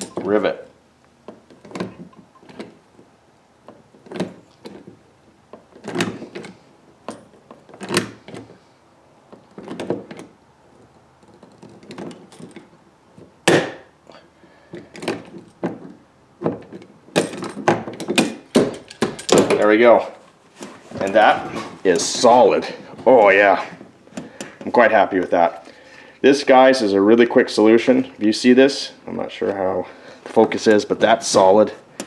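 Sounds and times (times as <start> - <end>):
loud crack: 13.5 - 13.9
rivet tool clunking: 14.7 - 19.8.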